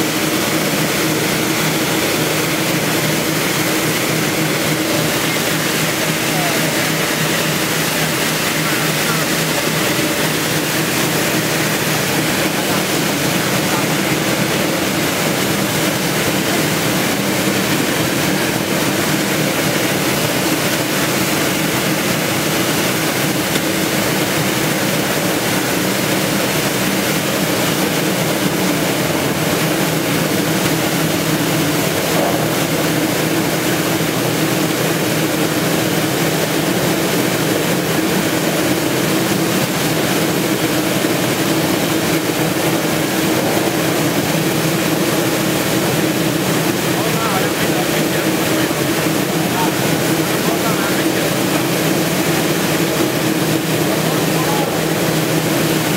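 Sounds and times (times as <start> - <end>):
low machine hum: 0.0 - 55.9
water jets spraying: 0.0 - 55.9.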